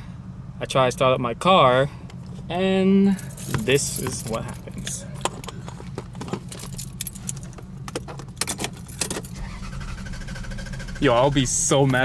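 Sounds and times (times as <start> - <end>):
steady low hum: 0.0 - 12.0
car keys jangling: 3.2 - 9.6
ignition key clicks: 3.4 - 9.4.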